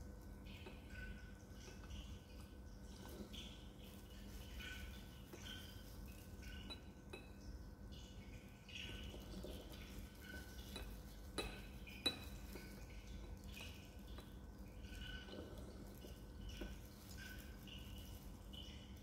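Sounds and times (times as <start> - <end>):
glass flask clinking on funnel: 8.9 - 17.6.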